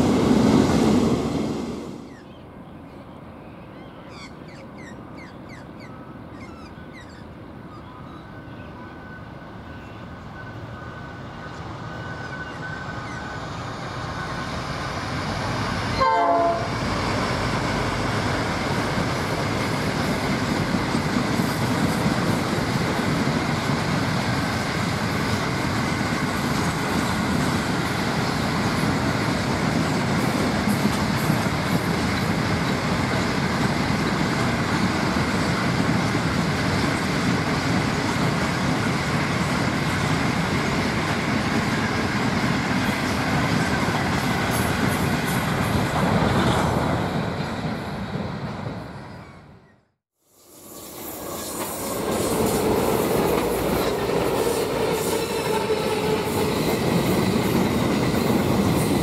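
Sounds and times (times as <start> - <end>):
train rumbling on rails: 0.0 - 59.0
train horn blast: 15.9 - 16.9.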